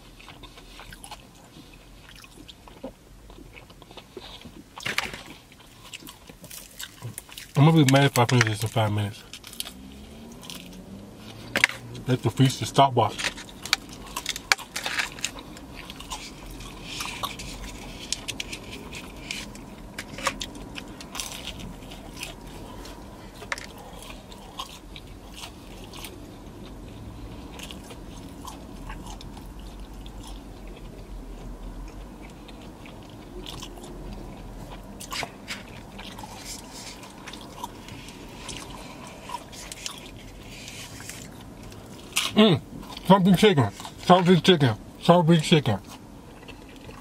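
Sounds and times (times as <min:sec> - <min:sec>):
chewing and biting chicken: 0:00.0 - 0:11.9, 0:13.3 - 0:44.1, 0:45.7 - 0:47.0.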